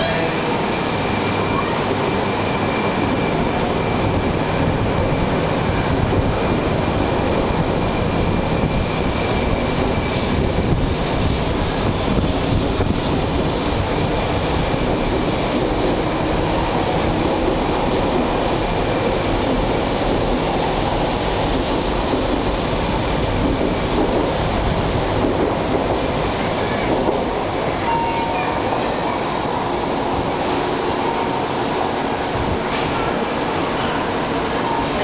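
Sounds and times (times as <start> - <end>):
train rumbling past: 0.0 - 35.0.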